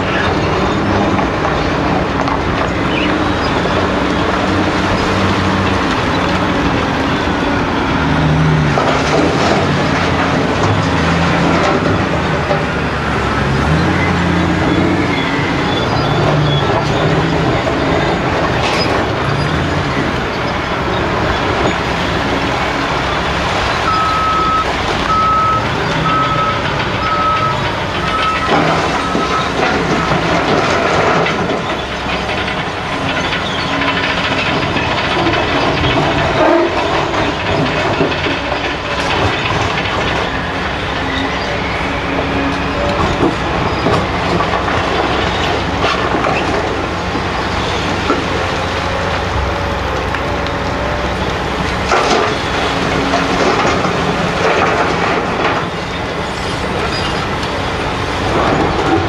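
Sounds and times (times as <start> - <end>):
diesel engines running: 0.0 - 59.0
reversing alarm beeps: 23.8 - 30.2.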